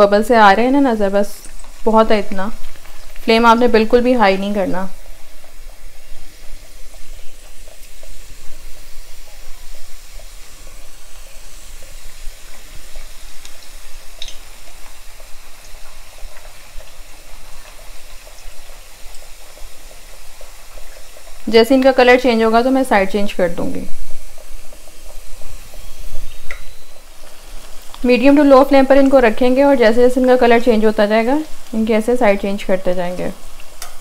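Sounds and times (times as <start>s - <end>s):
dough sizzling in frying oil: 0.0s - 34.0s.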